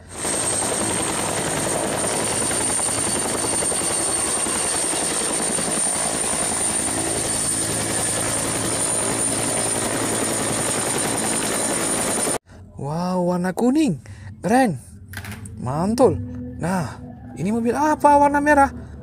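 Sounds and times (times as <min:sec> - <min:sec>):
helicopter rotor chop: 0:00.0 - 0:12.4
high turbine whine: 0:00.0 - 0:12.4.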